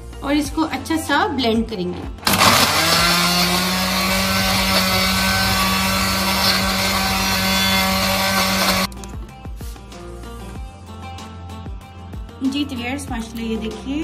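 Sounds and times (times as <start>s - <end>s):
blender motor whirring: 2.2s - 8.9s.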